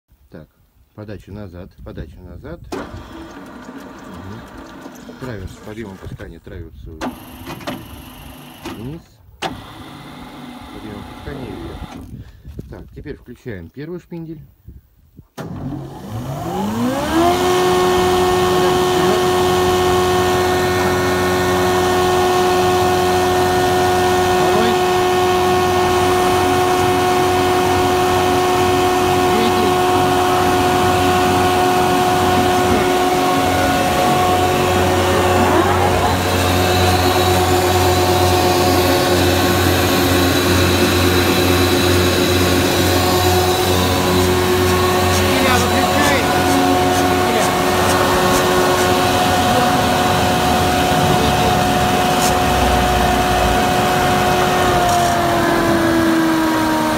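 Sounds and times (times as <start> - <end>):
machine hum: 16.5 - 56.9.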